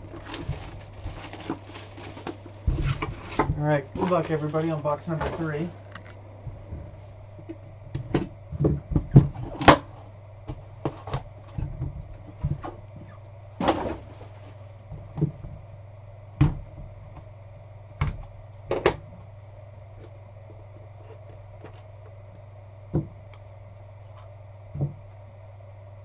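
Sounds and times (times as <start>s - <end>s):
cardboard box handled and opened: 0.0s - 5.6s.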